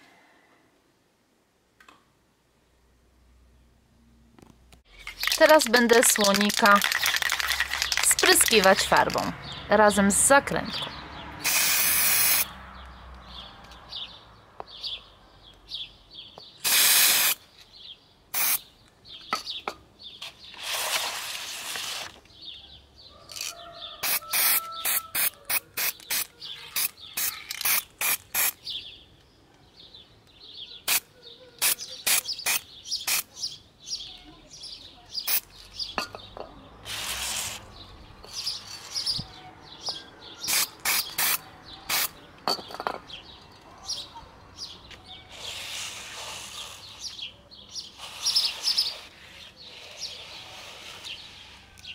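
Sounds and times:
aerosol can spraying: 11.4 - 12.5, 16.6 - 17.4, 18.4 - 18.6, 24.0 - 28.6, 31.6 - 33.3, 40.4 - 42.1, 45.3 - 47.1, 48.0 - 49.1.

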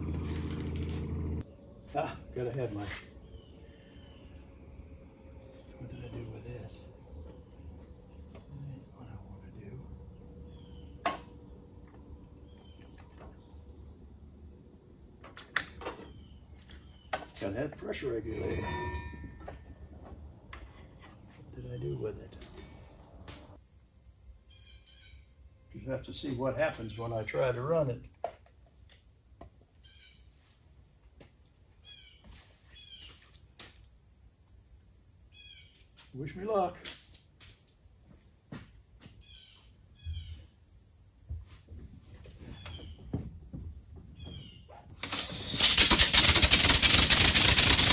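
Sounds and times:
faint bird chirps: 0.0 - 23.6, 24.2 - 27.9, 28.9 - 45.7
insects droning: 0.0 - 47.9.

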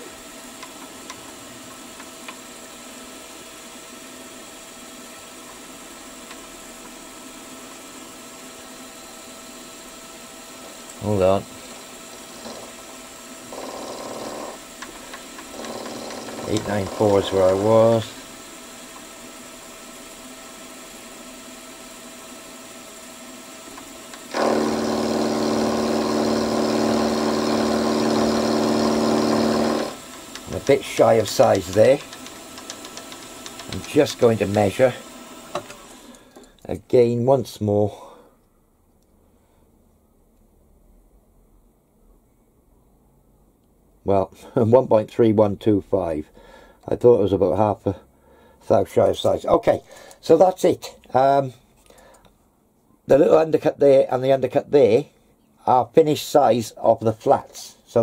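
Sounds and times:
milling machine humming: 0.0 - 36.5.

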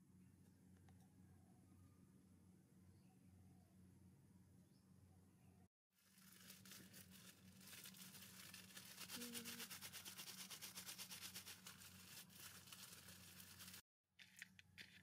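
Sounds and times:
crinkling rustle between hands: 6.0 - 15.0.

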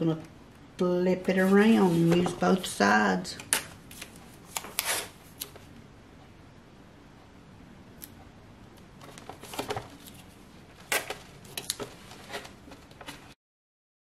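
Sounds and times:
tape ripping off roll: 10.9 - 12.5.

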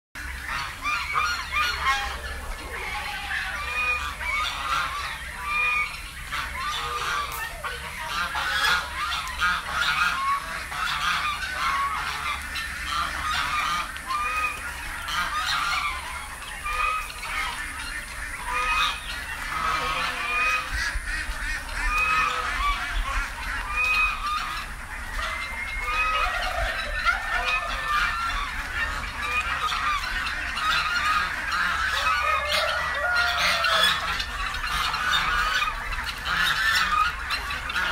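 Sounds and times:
geese honking: 0.2 - 37.9
poultry calling: 0.2 - 37.9.

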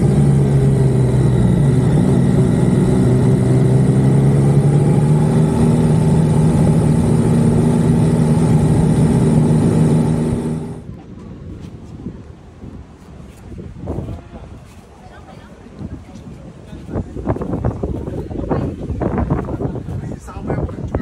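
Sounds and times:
motorcycle engine cruising: 0.0 - 10.9
road noise: 0.0 - 21.0.

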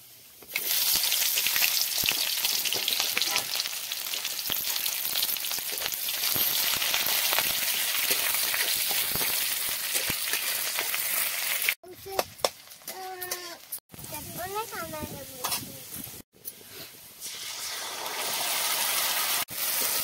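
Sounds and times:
onions sizzling in hot oil: 0.0 - 11.8, 17.2 - 20.0.

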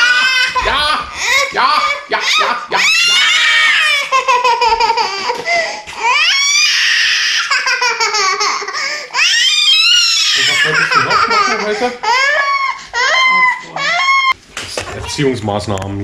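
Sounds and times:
child squealing and shrieking: 0.0 - 4.1, 6.0 - 7.6, 9.2 - 11.1, 12.1 - 14.4.

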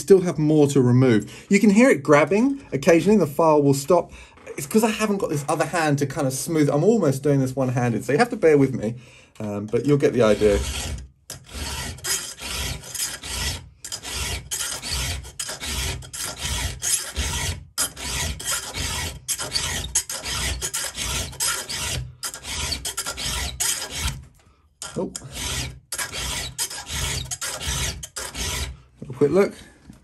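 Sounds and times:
file rasping on chain tooth: 10.0 - 24.2, 24.8 - 28.8.

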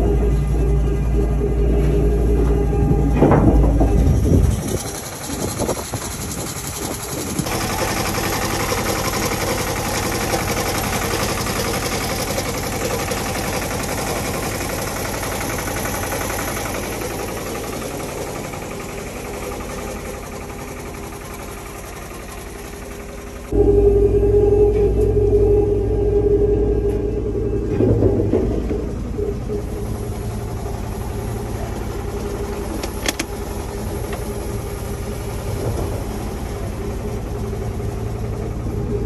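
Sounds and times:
engine idling with clatter: 0.0 - 39.0
scattered knocks: 3.0 - 5.1, 27.6 - 29.7.

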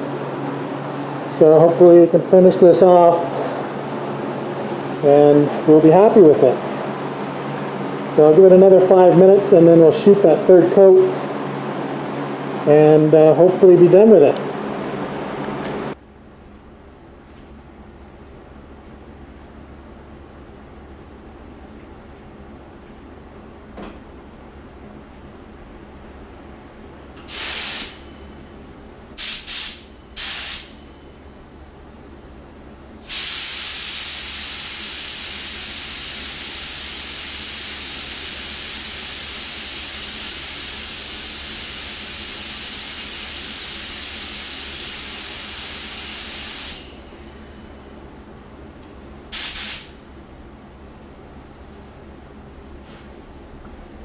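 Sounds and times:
compressed air blasts: 27.2 - 28.3, 29.1 - 30.9, 33.0 - 47.6, 49.3 - 50.1.

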